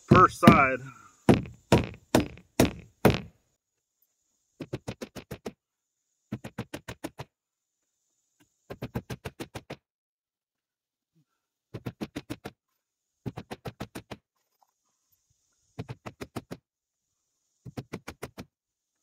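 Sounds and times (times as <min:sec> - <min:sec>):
hammer blows on wood: 0:00.0 - 0:03.4.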